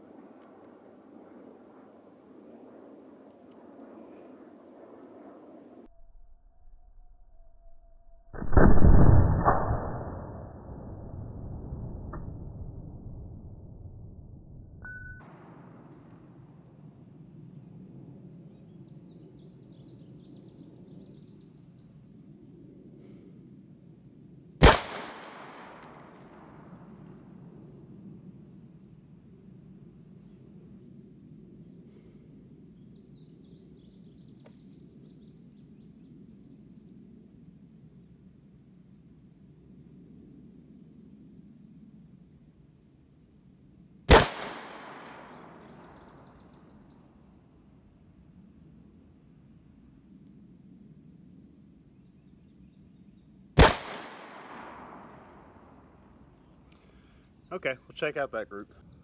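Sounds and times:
high insect trill: 0:00.0 - 0:08.4, 0:14.8 - 0:59.0
rifle shots with echo: 0:08.4 - 0:10.2, 0:24.6 - 0:27.2, 0:44.1 - 0:46.2, 0:53.6 - 0:55.7.

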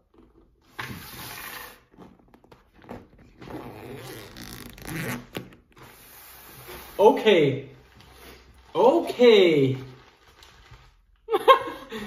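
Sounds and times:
zipper being pulled open: 0:03.2 - 0:07.0.

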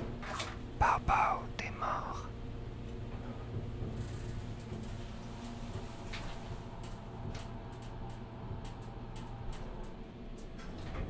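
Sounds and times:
steady low hum: 0:00.0 - 0:11.0
faint clicks and ticks: 0:02.8 - 0:11.0.

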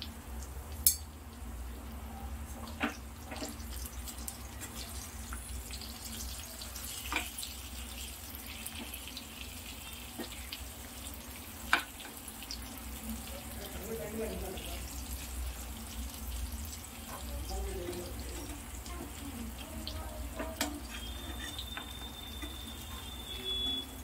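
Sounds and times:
fish sizzling in frying pan: 0:00.0 - 0:24.0
metal spatula clicking on pan: 0:00.8 - 0:01.1.

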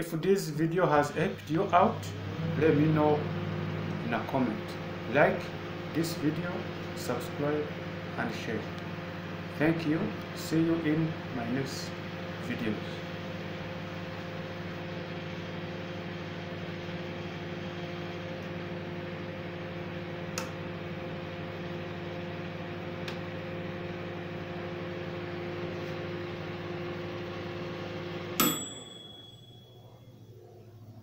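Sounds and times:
microwave oven humming: 0:00.0 - 0:31.0
microwave click: 0:20.3 - 0:20.6, 0:23.0 - 0:23.4, 0:28.4 - 0:29.4
high ringing ding: 0:28.4 - 0:30.1.

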